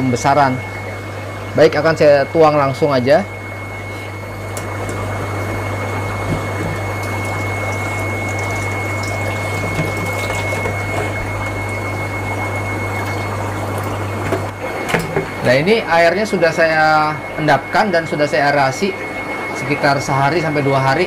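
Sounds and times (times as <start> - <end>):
constant low hum: 0.0 - 21.0
water pouring into aquarium: 5.7 - 14.6.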